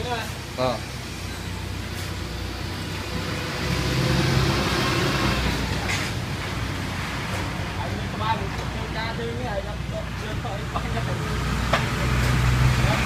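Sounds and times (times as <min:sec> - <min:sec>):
street traffic hum: 0:00.0 - 0:13.0
vehicle engine passing close: 0:01.6 - 0:08.9, 0:10.3 - 0:13.0.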